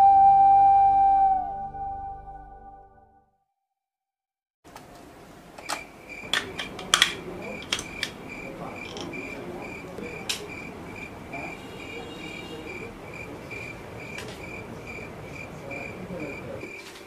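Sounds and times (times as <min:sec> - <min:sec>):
cricket chirping: 0:05.6 - 0:17.0.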